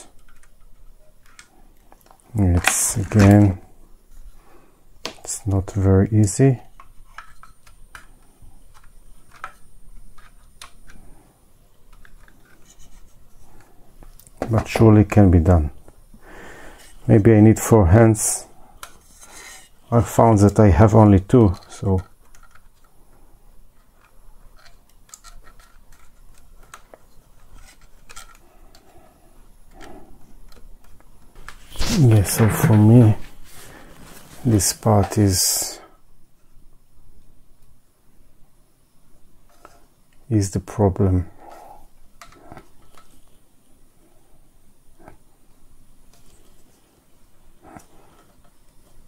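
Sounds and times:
clicks of plastic parts handled: 0.0s - 3.4s, 6.7s - 11.1s, 11.9s - 14.8s, 18.8s - 19.6s, 21.3s - 23.0s, 23.8s - 29.0s, 42.2s - 43.4s.

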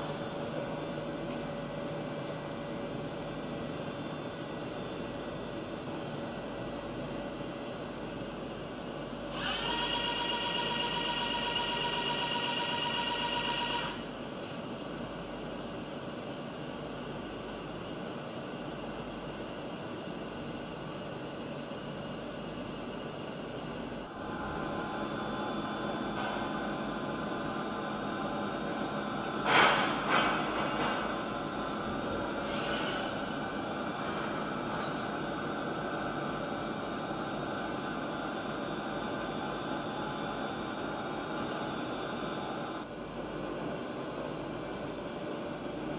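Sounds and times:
machine tool high-pitched whine: 9.2s - 14.1s, 24.1s - 45.9s
machine noise hiss: 24.1s - 41.1s.

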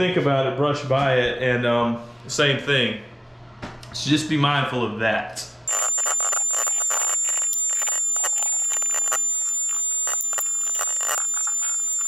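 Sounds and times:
steady high-pitched whine: 5.7s - 12.0s.

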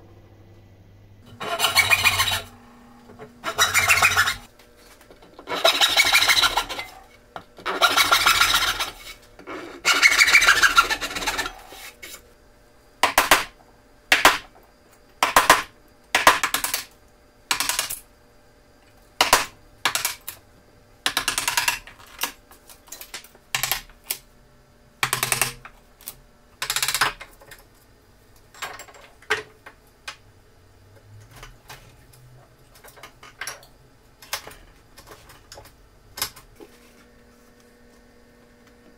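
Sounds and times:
chisel scraping wood: 1.3s - 2.5s, 3.4s - 4.5s, 5.5s - 7.0s, 7.7s - 12.2s
backsaw rasping through wood: 1.3s - 2.6s, 3.4s - 4.5s, 5.5s - 7.1s, 7.7s - 9.2s, 9.8s - 11.9s.

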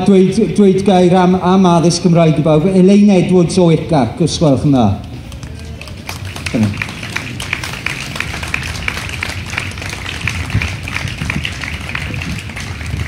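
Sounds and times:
small crowd applauding: 5.2s - 13.0s.

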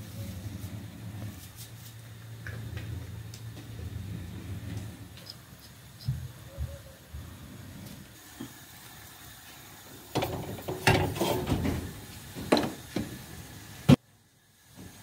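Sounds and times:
pot clattering on metal grate: 10.1s - 12.9s.

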